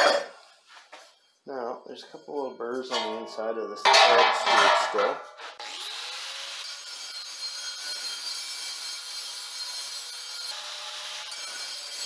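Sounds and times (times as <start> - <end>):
angle grinder grinding metal: 2.6 - 12.0.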